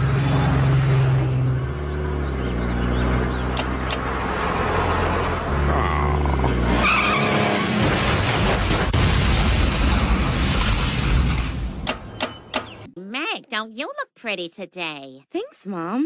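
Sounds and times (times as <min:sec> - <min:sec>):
explosion: 0:07.8 - 0:11.8.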